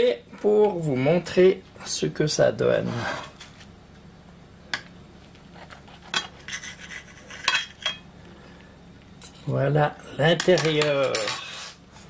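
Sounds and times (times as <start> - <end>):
cutlery scraping ceramic plate: 5.6 - 8.0.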